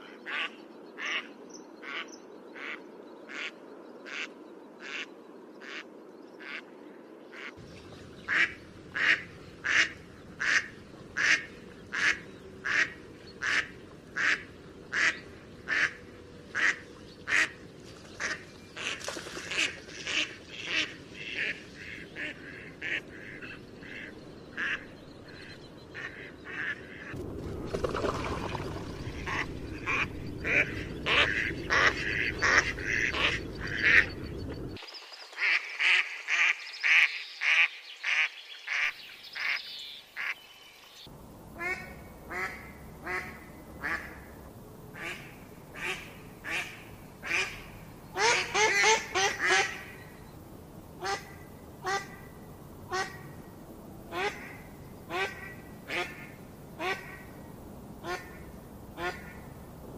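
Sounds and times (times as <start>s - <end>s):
ducklings peeping: 29.2s - 34.8s.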